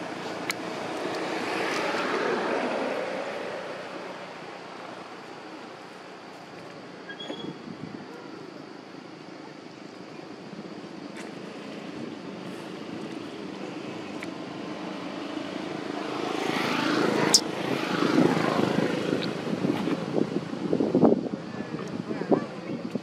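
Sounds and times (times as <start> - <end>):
motor vehicle passing: 0.0 - 5.8, 11.3 - 20.6
outdoor background noise: 0.0 - 23.0.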